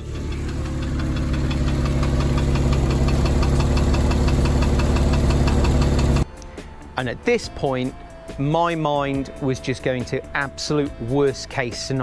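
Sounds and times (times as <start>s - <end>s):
car engine idling roughly misfiring: 0.0s - 6.2s
metallic knocking from engine: 0.0s - 6.2s.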